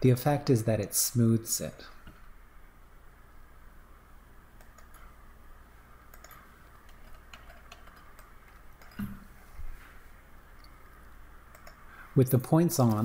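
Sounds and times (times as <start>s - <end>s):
low steady hum: 0.0s - 13.0s
computer mouse clicks: 4.6s - 5.1s, 6.0s - 9.2s, 10.6s - 11.9s.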